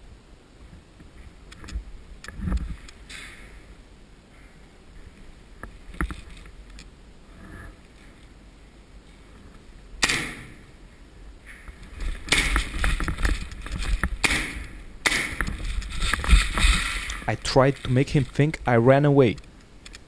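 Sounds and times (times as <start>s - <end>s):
clothing rustling on microphone: 15.4s - 18.6s.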